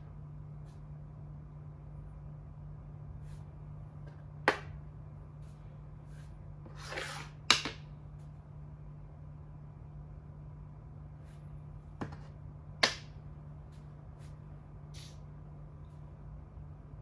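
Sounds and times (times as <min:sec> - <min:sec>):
chess piece sliding on board: 0:06.1 - 0:07.8.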